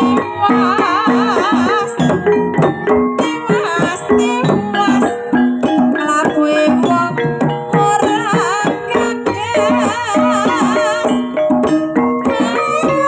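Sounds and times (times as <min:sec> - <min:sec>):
hand drum strokes: 0:00.0 - 0:13.0
woman singing ornamented phrases: 0:00.0 - 0:13.0.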